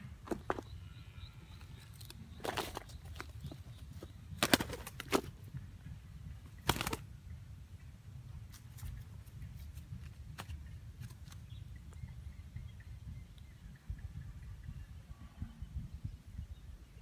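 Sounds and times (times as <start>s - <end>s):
bird wings fluttering: 2.0s - 5.5s, 6.5s - 7.1s.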